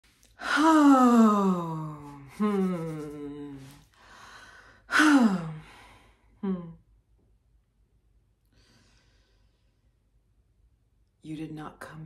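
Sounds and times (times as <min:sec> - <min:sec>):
woman sighing: 0:00.4 - 0:06.8.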